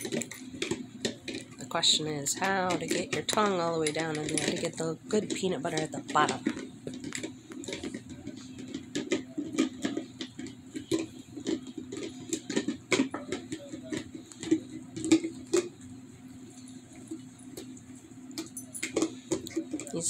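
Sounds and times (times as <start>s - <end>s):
muzzle knocking plastic: 2.4s - 15.7s
dog licking plastic jar: 2.7s - 15.8s, 16.4s - 20.0s.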